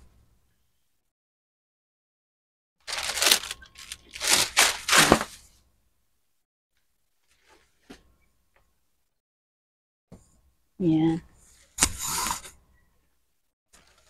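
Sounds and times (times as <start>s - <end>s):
plastic packaging crinkling: 2.8s - 5.5s.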